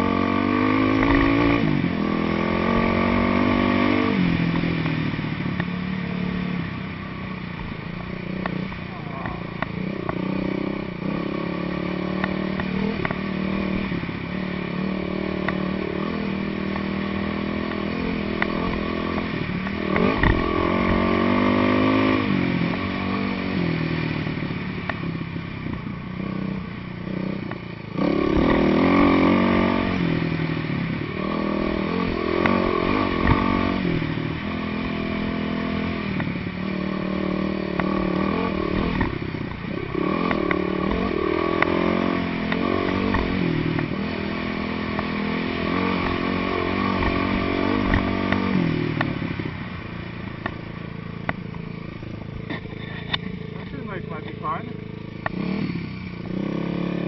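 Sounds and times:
dirt bike engine revving: 0.0 - 6.5, 7.6 - 24.4, 25.4 - 57.0.

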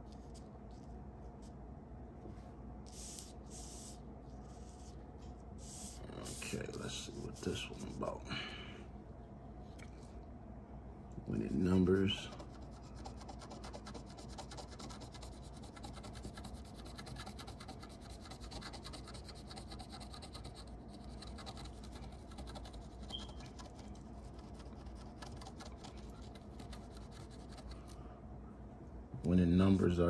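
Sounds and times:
coin scratching lottery ticket: 11.8 - 27.7.

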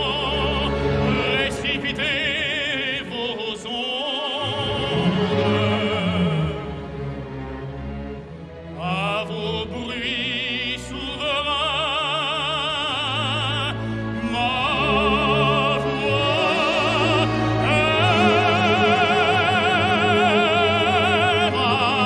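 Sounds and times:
operatic tenor singing: 0.0 - 7.5, 8.6 - 22.0
orchestra sustained strings: 0.0 - 22.0.

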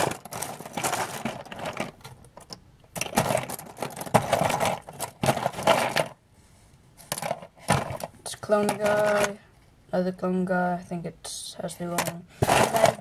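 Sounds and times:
plastic toy parts clattering: 0.0 - 6.2, 7.0 - 9.4, 11.8 - 13.0.

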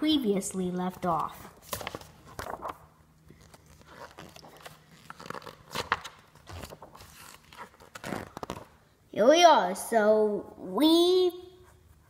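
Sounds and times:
book pages rustling: 0.9 - 8.8.

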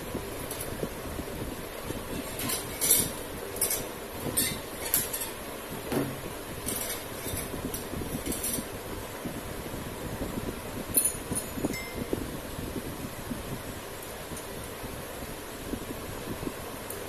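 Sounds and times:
metallic clinks and scrapes: 2.0 - 5.4, 6.6 - 8.7, 11.0 - 12.1.

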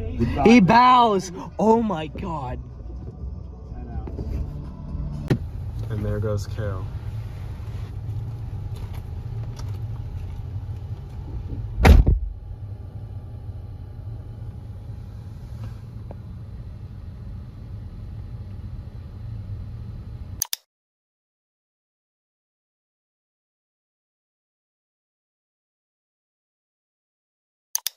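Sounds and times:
idling car hum: 0.0 - 20.4
car door slamming: 11.7 - 12.4
sharp clicks: 20.4 - 20.7.

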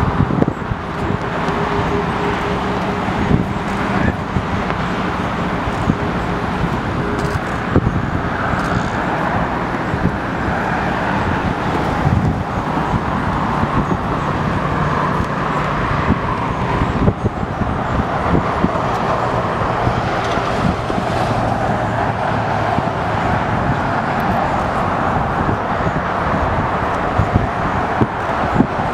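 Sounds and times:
jet engines rushing: 0.0 - 28.9.

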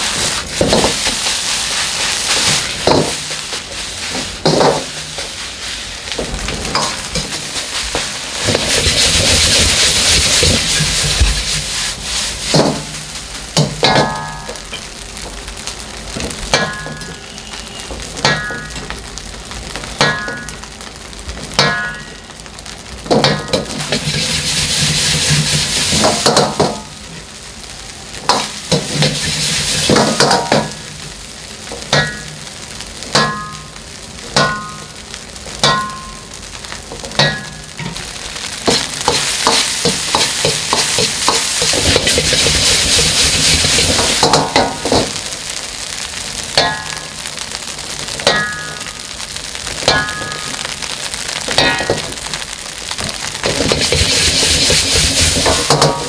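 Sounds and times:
rice sizzling in a wok: 0.0 - 56.0
metal ladle striking a wok: 12.5 - 14.9, 16.5 - 17.3, 18.2 - 18.9, 20.0 - 20.6, 21.6 - 22.2, 23.1 - 26.9, 31.8 - 32.4, 33.1 - 35.0, 35.6 - 36.4, 37.0 - 38.0, 38.6 - 45.2, 46.5 - 47.2, 48.2 - 49.0, 49.8 - 50.6, 51.5 - 52.2, 53.4 - 56.0.

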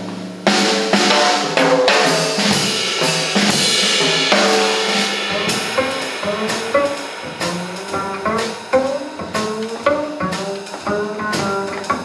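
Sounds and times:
drum kit and cymbals: 0.0 - 12.0
double bass walking notes: 3.0 - 12.0.

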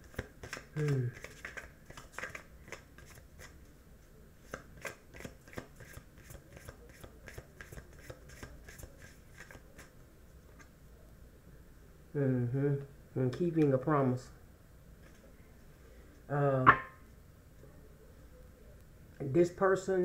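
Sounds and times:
cards being shuffled: 0.0 - 3.6, 4.4 - 9.9.

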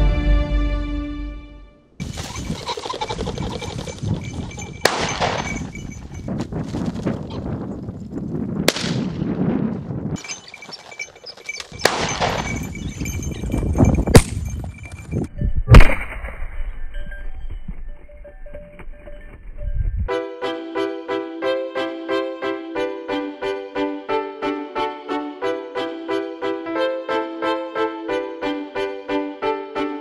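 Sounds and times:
shotgun shots with echo: 4.8 - 5.6, 8.7 - 9.2, 11.8 - 12.6.

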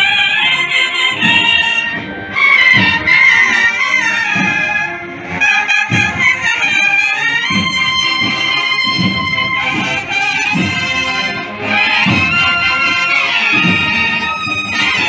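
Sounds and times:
marching band of bugles and trumpets: 0.0 - 15.0
low drum beat: 5.9 - 15.0.

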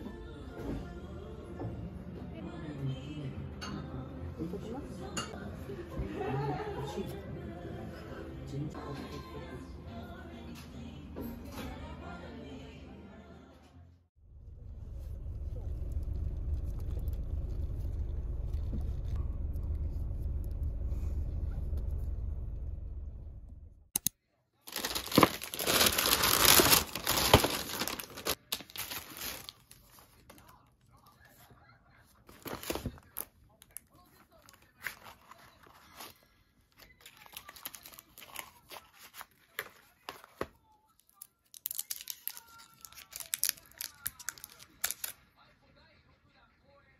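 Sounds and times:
plastic wrappers crinkling: 24.7 - 31.2, 32.2 - 45.2.

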